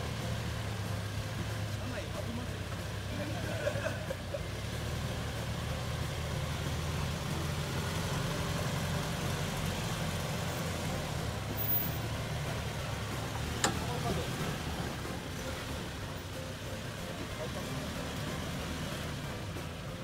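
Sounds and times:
truck engine idling: 0.0 - 20.0.

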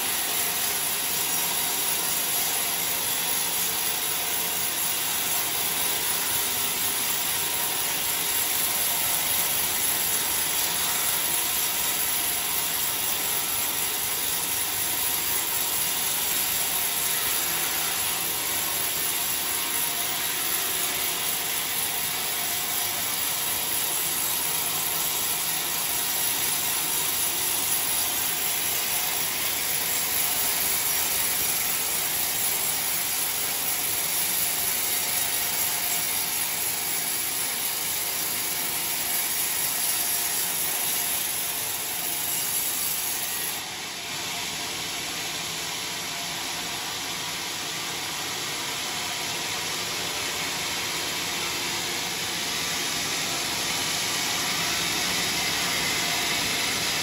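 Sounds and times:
band saw cutting log: 0.0 - 44.0, 49.0 - 57.0.

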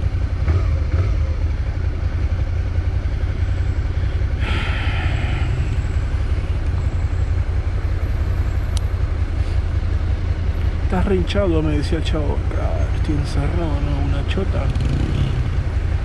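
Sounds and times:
motorcycle engine idling: 0.0 - 16.0.

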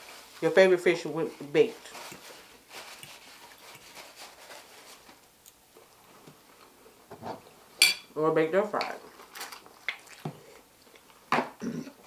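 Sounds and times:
soft chewing: 1.9 - 7.0, 9.0 - 11.3.

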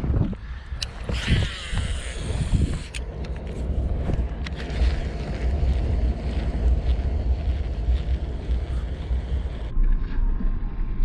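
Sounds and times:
wind buffeting microphone: 0.0 - 9.7
fishing reel clicks and whir: 0.6 - 3.5.

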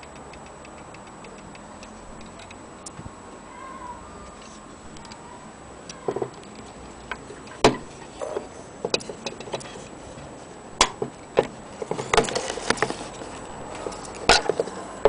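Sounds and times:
clock mechanism clicks and knocks: 0.0 - 3.0, 7.1 - 9.8, 10.8 - 14.8.

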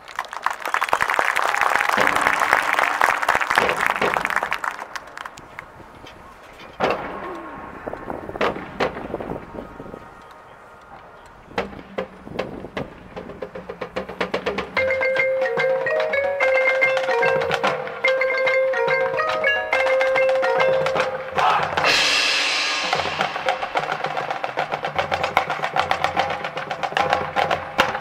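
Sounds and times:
marimba and mallet percussion: 14.3 - 28.0.

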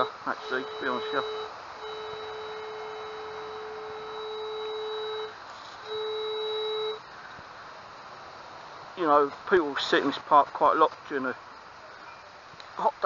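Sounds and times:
metal detector tone: 0.0 - 7.0.

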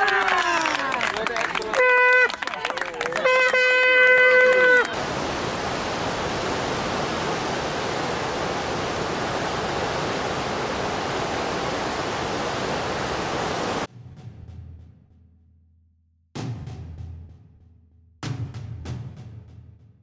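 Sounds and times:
river torrent rushing: 4.8 - 13.9.

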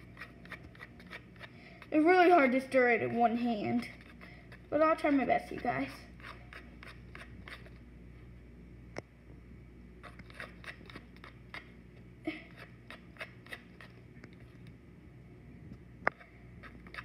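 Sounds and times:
spoon scraping plastic bowl: 0.0 - 7.8, 10.0 - 11.7, 12.5 - 14.6, 16.2 - 17.0.

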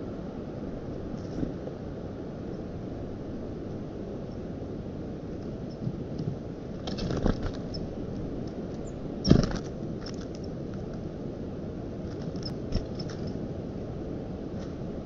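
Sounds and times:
low wind rumble: 0.0 - 15.0.

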